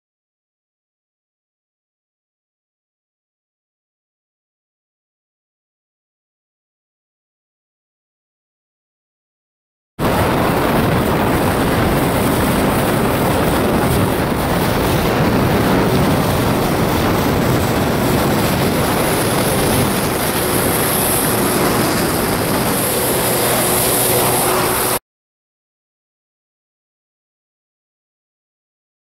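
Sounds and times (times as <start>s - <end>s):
faint engine hum: 10.0s - 25.0s
wind and water rushing: 10.0s - 25.0s.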